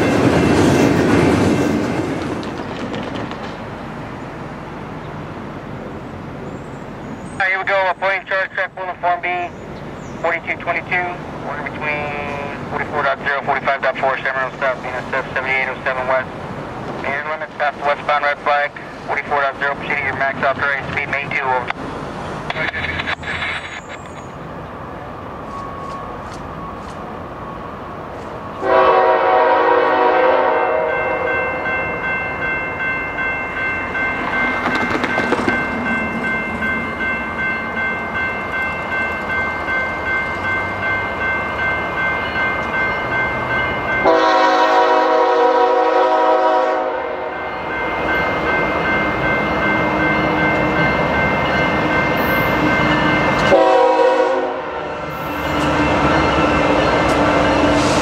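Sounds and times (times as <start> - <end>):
crossing bells ringing: 0.0 - 1.0, 7.4 - 16.4, 28.4 - 57.9
train rumbling: 0.0 - 58.0
locomotive air horn blasts: 28.6 - 31.3, 44.0 - 47.5, 53.4 - 55.2.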